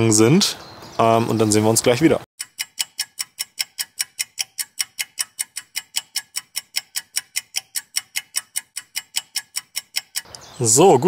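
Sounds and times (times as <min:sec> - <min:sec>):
clock ticking: 0:02.4 - 0:10.5.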